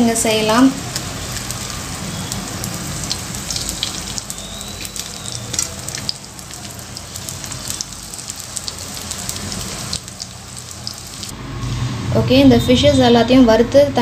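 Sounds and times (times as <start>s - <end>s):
fish sizzling in oil: 0.0s - 11.3s
crackles and pops: 0.9s - 11.3s.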